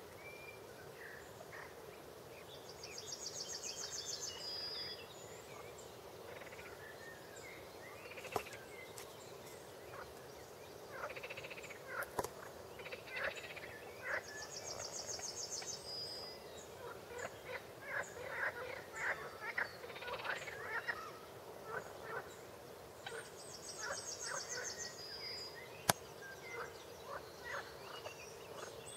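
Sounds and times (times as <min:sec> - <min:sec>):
frogs croaking: 0:06.2 - 0:06.8, 0:08.0 - 0:08.6, 0:10.9 - 0:15.8, 0:16.8 - 0:22.3, 0:25.9 - 0:28.8.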